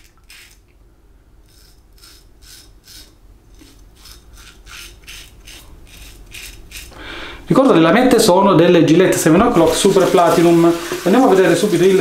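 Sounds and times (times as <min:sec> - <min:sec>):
razor scraping stubble: 0:00.0 - 0:00.6, 0:01.4 - 0:07.0.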